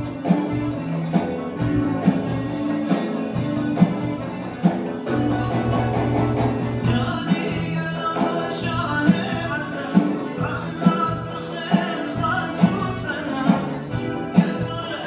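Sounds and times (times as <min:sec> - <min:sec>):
violin and kanun hymn: 0:00.0 - 0:15.0
male chorus singing: 0:05.1 - 0:15.0.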